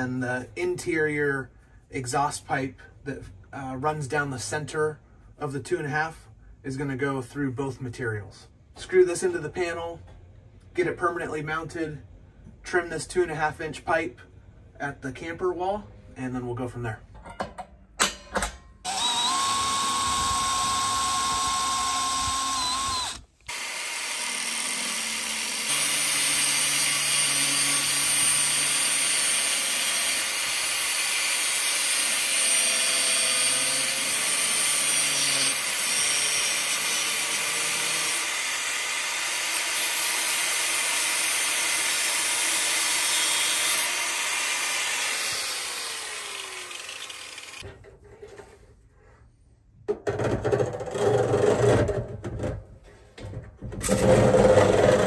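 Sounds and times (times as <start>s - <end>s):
power drill driving screws: 18.9s - 47.6s
angle grinder cutting metal pipe: 18.9s - 47.7s.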